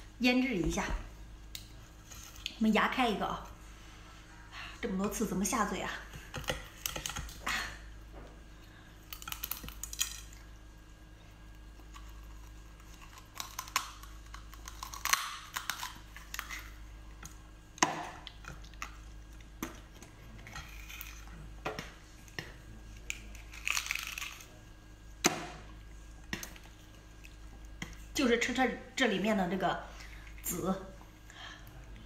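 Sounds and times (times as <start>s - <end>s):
sea urchin shell cracking: 11.9s - 16.8s, 23.0s - 24.5s.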